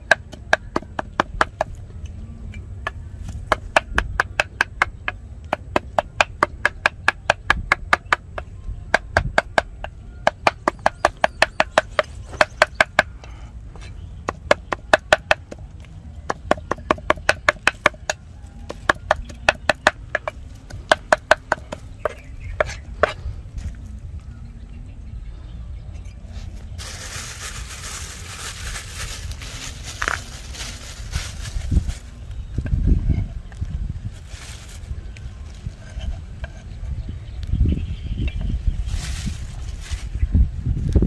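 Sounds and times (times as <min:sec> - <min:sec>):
cleaver chopping on wooden block: 0:16.3 - 0:23.2.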